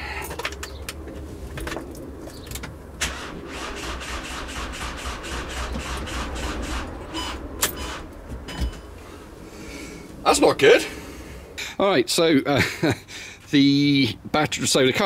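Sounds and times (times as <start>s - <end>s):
starter motor cranking engine: 3.0s - 7.1s.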